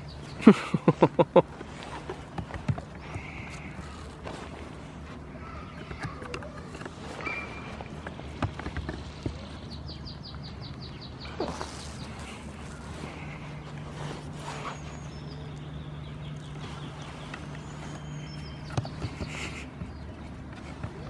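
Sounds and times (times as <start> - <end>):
low steady hum: 0.0 - 21.0
hooves tapping on wooden boards: 5.6 - 7.0, 7.6 - 9.8, 18.4 - 21.0.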